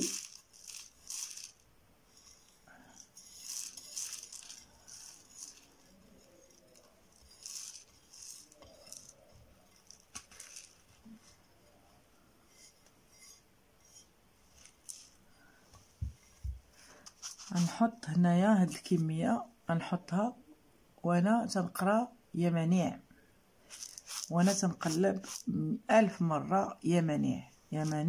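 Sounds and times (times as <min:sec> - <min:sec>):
dry seeds rustling: 0:00.0 - 0:19.1, 0:23.6 - 0:26.2, 0:27.7 - 0:28.0.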